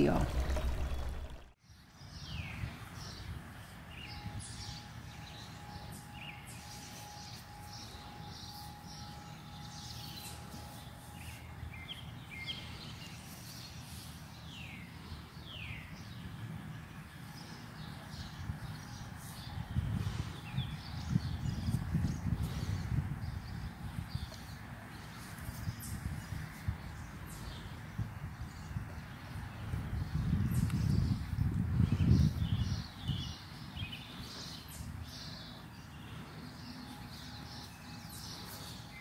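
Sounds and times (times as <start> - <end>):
low steady rumble: 0.0 - 1.6.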